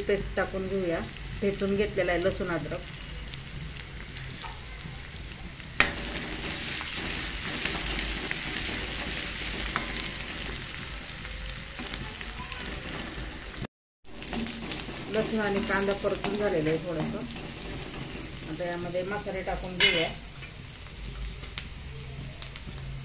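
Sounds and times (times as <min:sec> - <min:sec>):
food sizzling in hot oil: 0:00.0 - 0:23.0
ladle stirring: 0:11.8 - 0:18.6.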